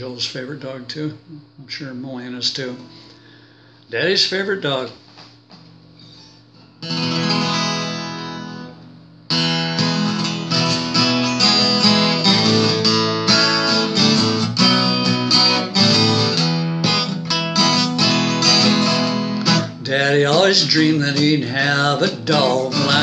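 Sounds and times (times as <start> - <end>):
acoustic guitar strumming: 5.4 - 23.0.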